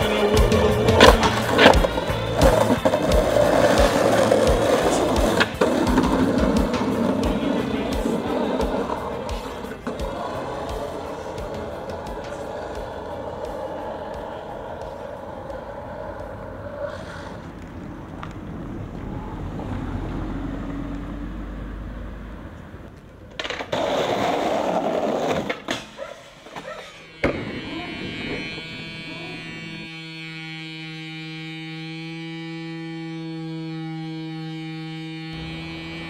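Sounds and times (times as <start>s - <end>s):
music with held notes: 0.0s - 16.8s, 32.8s - 36.0s
scraping rush: 0.0s - 19.4s
skateboard wheels rolling: 0.0s - 21.2s, 22.2s - 28.8s
skateboard knocks and clack: 22.9s - 26.6s.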